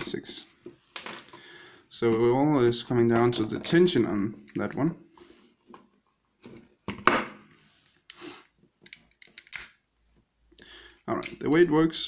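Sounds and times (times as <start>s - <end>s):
lock clicking and rattling: 8.8s - 9.8s.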